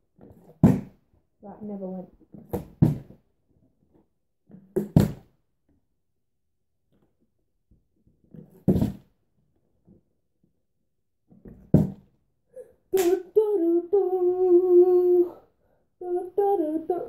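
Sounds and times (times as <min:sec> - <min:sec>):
plastic bottle thudding on floor: 0:00.4 - 0:01.0, 0:11.5 - 0:12.0
boy singing a long note: 0:13.0 - 0:15.4, 0:16.0 - 0:17.0.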